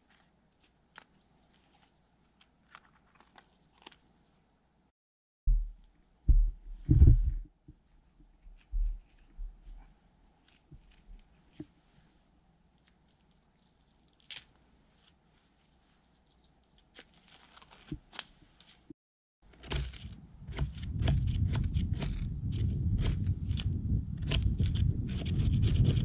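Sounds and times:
knife scraping dry tinder: 19.5s - 26.0s.

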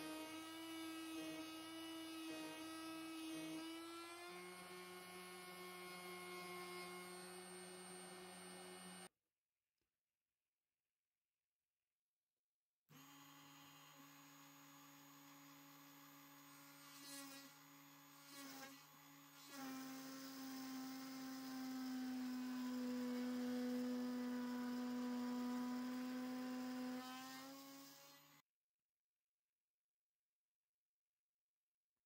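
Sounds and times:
rotary drill whining: 0.0s - 9.1s, 13.0s - 28.4s.

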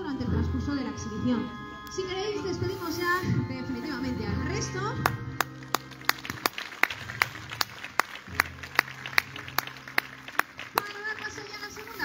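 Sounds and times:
background music with low notes: 0.0s - 12.0s
audience clapping in unison: 5.0s - 12.0s.

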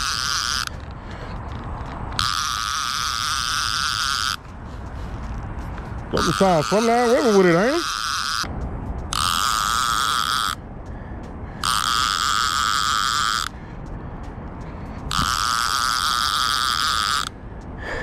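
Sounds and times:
fishing reel clicker buzzing: 0.0s - 0.7s, 2.0s - 4.4s, 6.2s - 8.5s, 9.1s - 10.6s, 11.6s - 13.5s, 15.1s - 17.4s.

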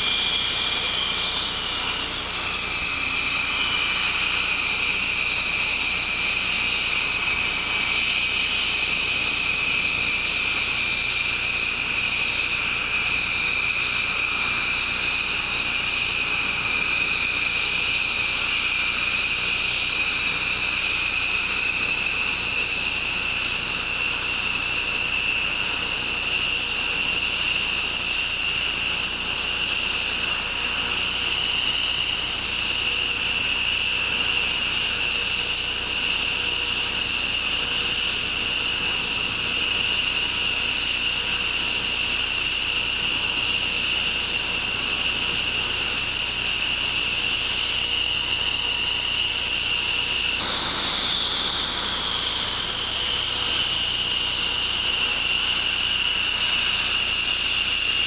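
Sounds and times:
jet engines idling: 0.0s - 14.8s, 50.3s - 58.0s.

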